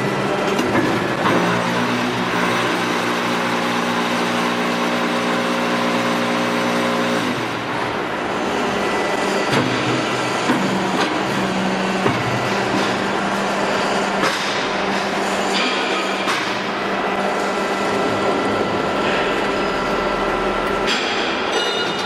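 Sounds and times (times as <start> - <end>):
machinery mechanical din: 0.0 - 22.0
droning hum: 14.8 - 21.6.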